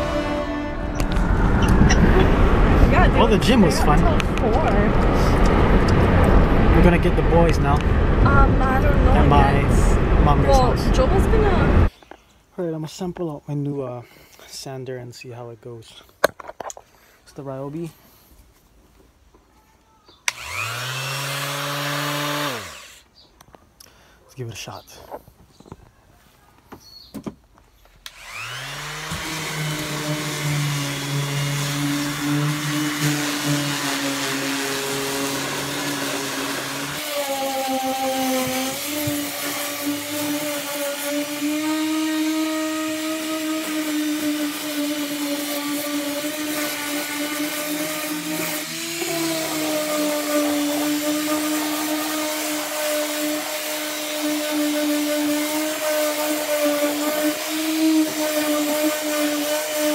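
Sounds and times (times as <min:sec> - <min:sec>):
electric sander running: 0:00.0 - 0:11.9, 0:20.3 - 0:23.0, 0:28.1 - 0:59.9.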